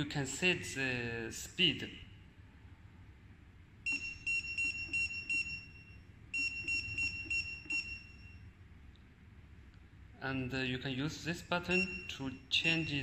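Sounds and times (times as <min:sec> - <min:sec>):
short high keypad beeps: 0:03.9 - 0:08.4, 0:11.7 - 0:13.0.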